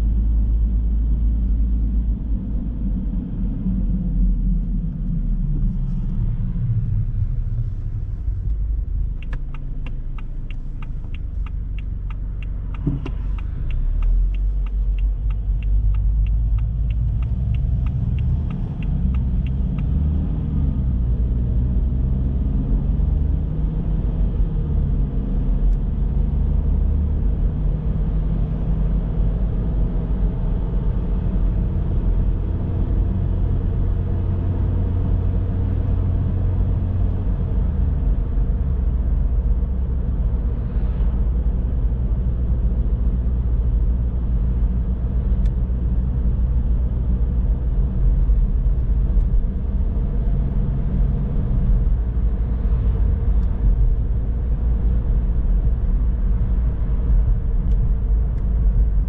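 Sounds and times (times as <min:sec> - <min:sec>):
car engine and road rumble: 0:00.0 - 0:59.0
regular ticking: 0:09.0 - 0:20.0.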